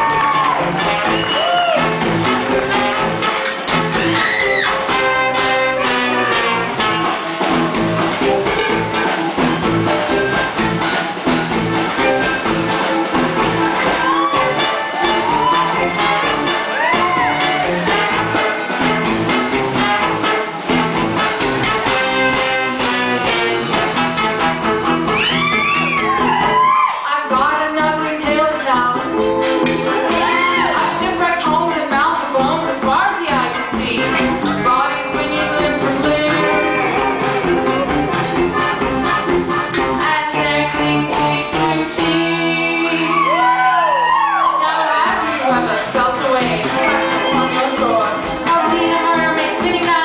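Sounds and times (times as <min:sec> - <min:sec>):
drum kit beat: 0:00.0 - 0:50.0
live band playing: 0:00.0 - 0:50.0
electric guitar: 0:28.3 - 0:44.4, 0:45.1 - 0:50.0
accordion: 0:33.9 - 0:41.9.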